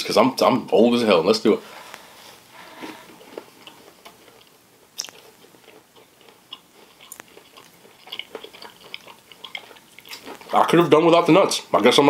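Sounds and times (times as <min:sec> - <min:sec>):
crunchy chewing of cookie: 0:02.8 - 0:10.9.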